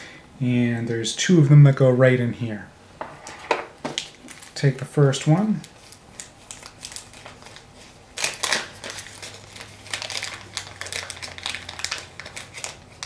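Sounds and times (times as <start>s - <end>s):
plastic bag crinkling: 3.9s - 4.7s, 5.3s - 13.0s.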